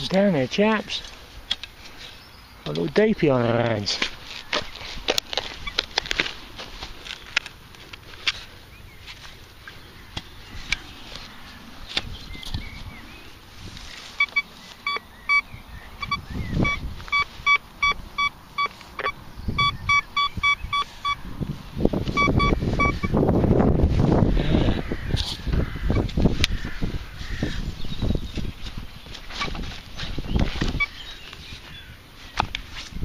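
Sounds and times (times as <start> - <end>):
rustling handling noise: 0.0 - 15.0
metal detector beeps: 14.1 - 21.2, 22.0 - 23.2, 30.7 - 31.0.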